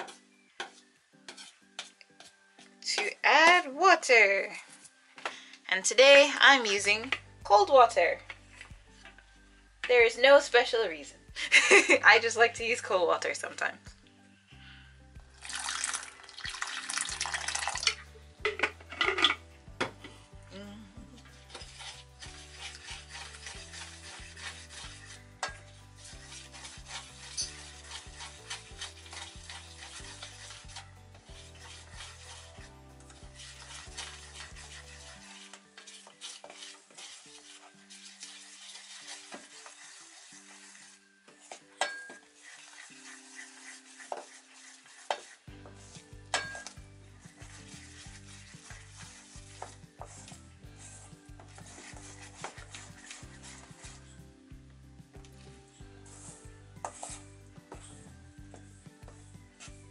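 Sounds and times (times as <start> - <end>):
spoon scraping dough in metal bowl: 0.0 - 3.6, 15.4 - 20.4, 21.1 - 59.9.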